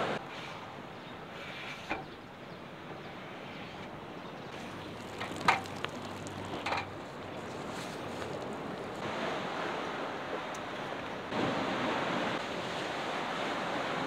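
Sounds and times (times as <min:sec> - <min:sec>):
sea waves: 0:00.0 - 0:14.0
wind: 0:00.0 - 0:14.0
water splattering onto grass: 0:04.6 - 0:09.0.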